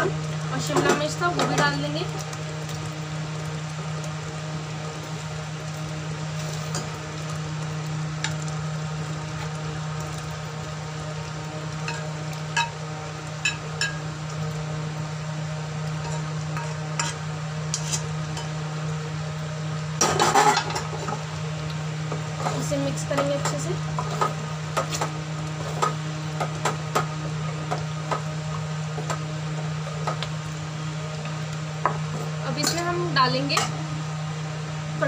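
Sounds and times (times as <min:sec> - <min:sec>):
spatula stirring food in pan: 0:11.2 - 0:12.8, 0:15.9 - 0:18.6.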